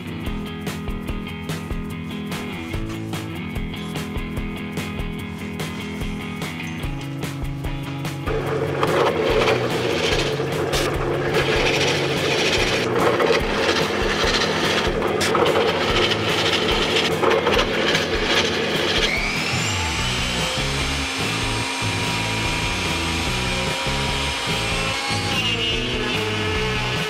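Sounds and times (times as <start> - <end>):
background music: 0.0 - 27.0
drill press boring into plywood: 8.3 - 27.0
power tool motor whine: 8.3 - 27.0.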